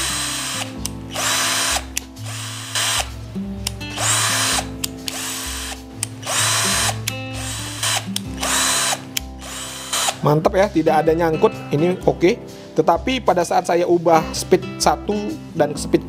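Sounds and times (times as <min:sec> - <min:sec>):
cordless drill motor spinning: 0:00.0 - 0:10.2
drill gear selector switching: 0:00.0 - 0:10.2.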